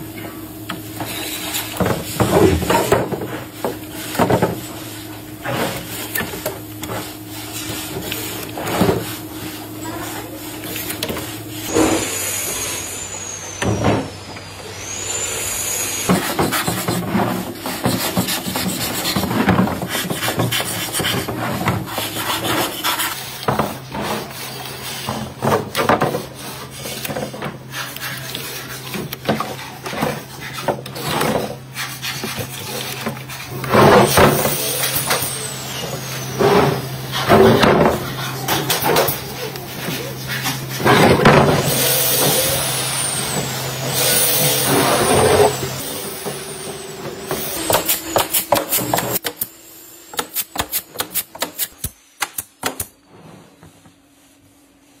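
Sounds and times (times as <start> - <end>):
rubbing across wooden board: 16.1 - 25.3.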